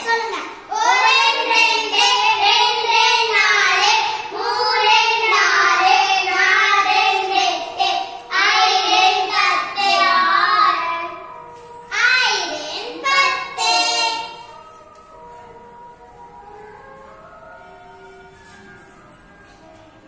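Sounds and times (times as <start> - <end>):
child singing high notes: 0.0 - 11.3, 11.9 - 14.5.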